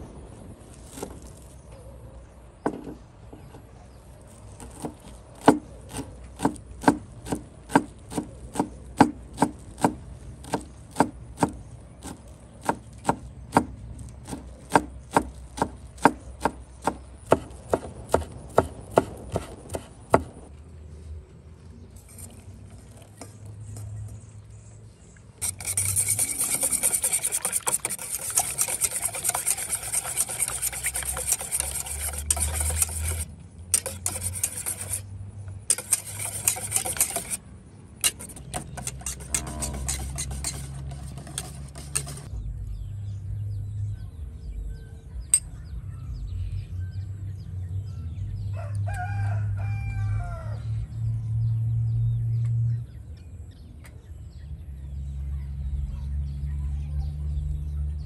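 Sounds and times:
fast scraping: 0:21.9 - 0:24.4, 0:25.4 - 0:37.4, 0:38.0 - 0:42.3
utensil knocking: 0:25.4 - 0:33.2, 0:38.0 - 0:42.3.

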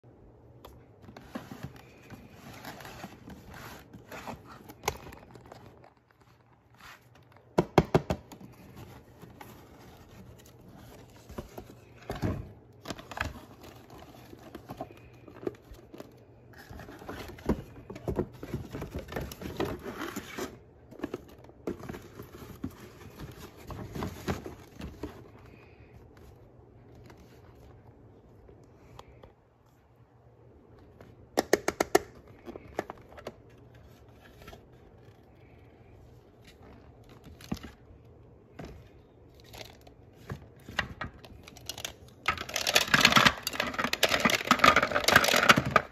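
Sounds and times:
cardboard box rustling: 0:00.8 - 0:07.6, 0:08.3 - 0:25.6.

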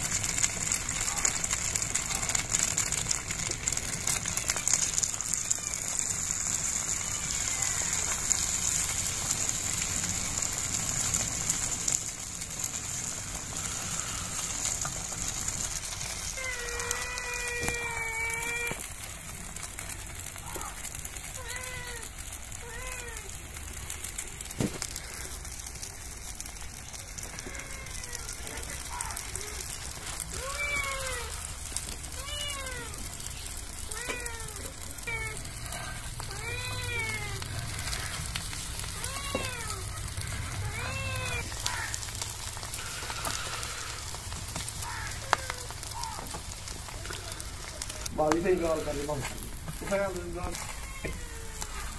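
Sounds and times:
crackling hiss: 0:00.0 - 0:51.9
egg frying sizzle: 0:00.0 - 0:51.9
animal crying: 0:16.3 - 0:18.8, 0:27.3 - 0:31.5, 0:33.8 - 0:42.1, 0:50.5 - 0:51.9
cat meowing: 0:30.3 - 0:31.4, 0:32.1 - 0:33.1, 0:33.9 - 0:38.2, 0:38.9 - 0:42.0, 0:50.5 - 0:51.9.

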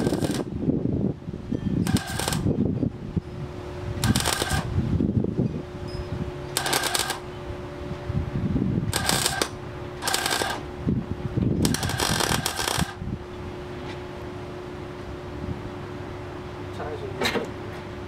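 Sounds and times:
arc welder crackling: 0:00.0 - 0:00.5, 0:01.8 - 0:02.6, 0:04.0 - 0:04.8, 0:06.6 - 0:07.3, 0:08.9 - 0:10.8, 0:11.6 - 0:13.0
steady hum: 0:00.0 - 0:18.0.

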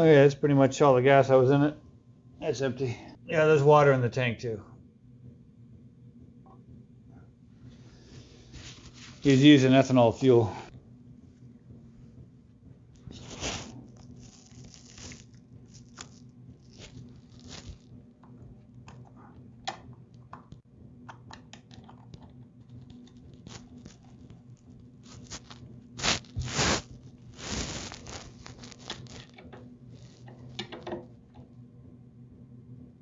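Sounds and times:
small clicks and taps: 0:18.2 - 0:24.4
scraping rustles: 0:25.0 - 0:29.3.

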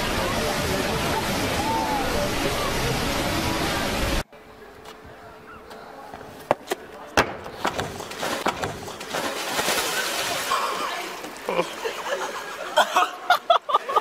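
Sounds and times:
rushing water: 0:00.0 - 0:04.2, 0:08.0 - 0:13.2
thumps on a wooden dock: 0:07.2 - 0:09.3
person splashing into water: 0:08.0 - 0:11.6.

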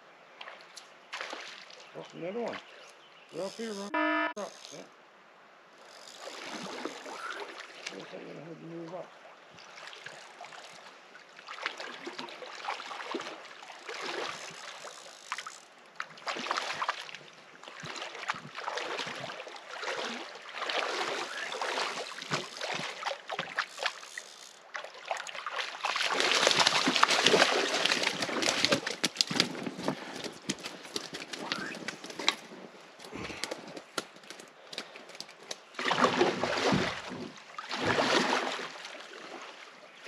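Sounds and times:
small waves lapping on rocks: 0:09.6 - 0:32.4.

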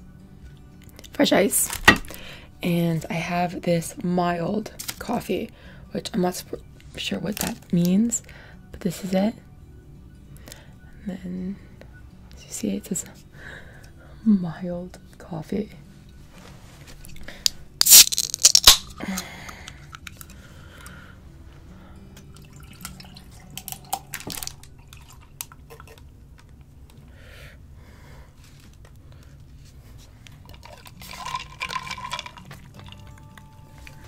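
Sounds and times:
drink can opening with hiss: 0:17.8 - 0:19.3
coffee poured over ice: 0:22.4 - 0:26.0, 0:30.5 - 0:33.2.

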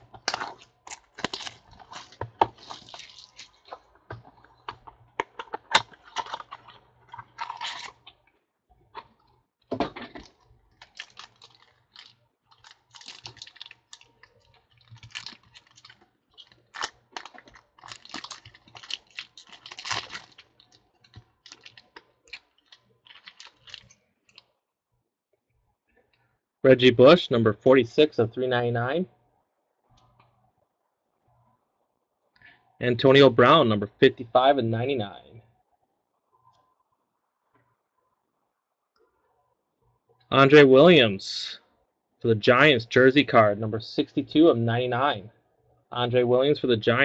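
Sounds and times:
packaging rustling and crinkling: 0:00.0 - 0:08.3, 0:10.1 - 0:24.5.

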